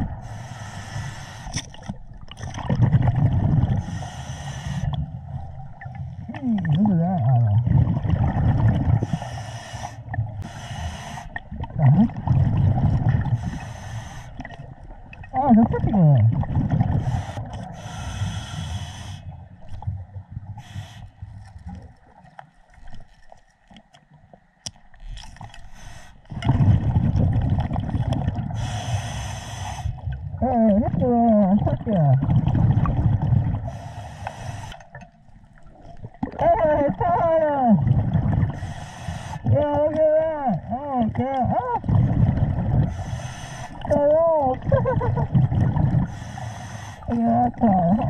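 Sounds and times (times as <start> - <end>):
regulator hissing inhale: 0.2 - 1.6, 3.8 - 5.0, 9.0 - 11.4, 13.4 - 14.4, 17.0 - 19.4, 20.6 - 21.2, 25.6 - 26.3, 28.6 - 30.0, 33.7 - 35.0, 38.6 - 39.4, 42.9 - 43.8, 46.0 - 47.1
bubbling exhales: 41.8 - 48.0.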